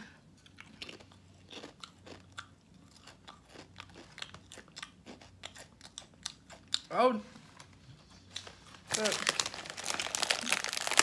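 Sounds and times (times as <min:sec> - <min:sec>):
potato chip crunching: 0:00.5 - 0:06.8, 0:08.9 - 0:11.0.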